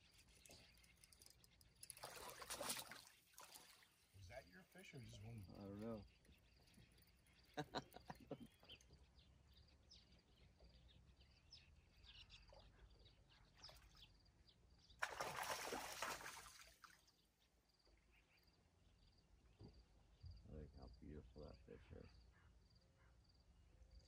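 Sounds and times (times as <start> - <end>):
fish splashing at surface: 1.9 - 4.0, 15.0 - 16.9.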